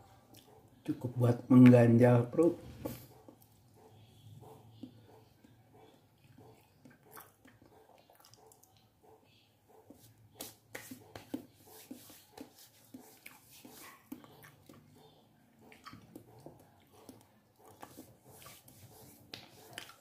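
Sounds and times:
man chewing and swallowing: 4.8 - 8.9, 14.0 - 18.1.

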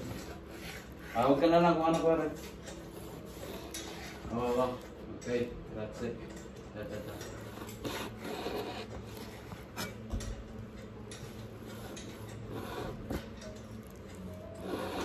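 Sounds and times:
hand tool scraping a wall: 7.0 - 10.0, 14.5 - 15.0.

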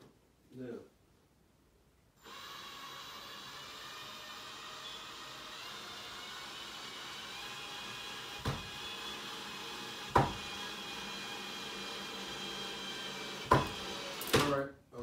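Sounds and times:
knocks on wood: 8.4 - 8.7, 10.1 - 10.5, 13.5 - 13.8.

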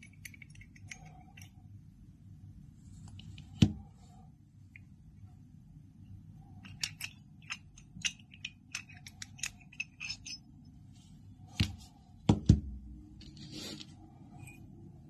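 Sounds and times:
small metal parts clicking: 0.0 - 1.7, 6.4 - 10.6.

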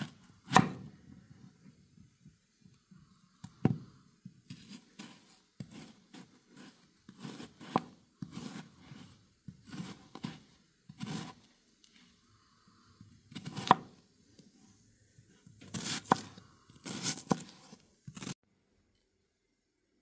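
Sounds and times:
knife slicing onion on board: 0.0 - 0.9, 4.5 - 12.1, 13.0 - 14.0, 15.2 - 18.4.

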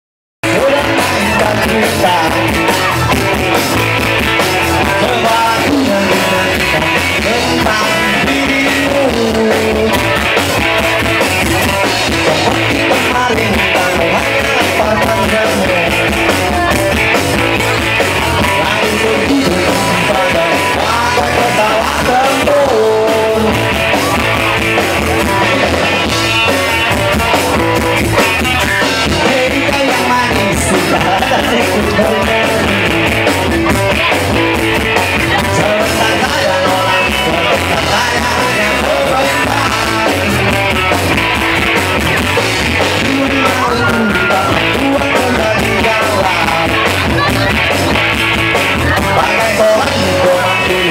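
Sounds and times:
drum kit: 0.4 - 50.9
electric guitars: 0.4 - 50.9
lead singer singing: 0.4 - 50.9.

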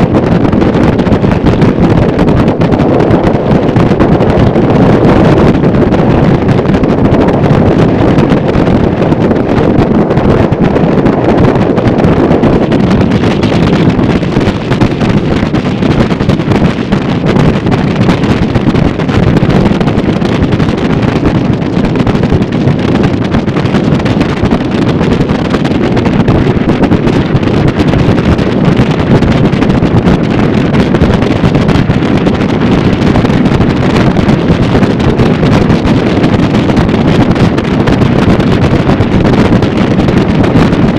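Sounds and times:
motorboat running: 0.0 - 40.9
wind buffeting microphone: 0.0 - 40.9.

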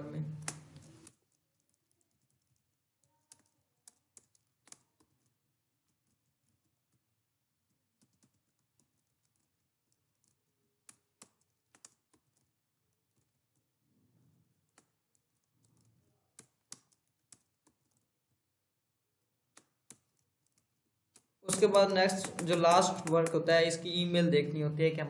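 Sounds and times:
faint computer keyboard clicks: 0.4 - 5.3, 10.2 - 12.4, 19.5 - 23.5.

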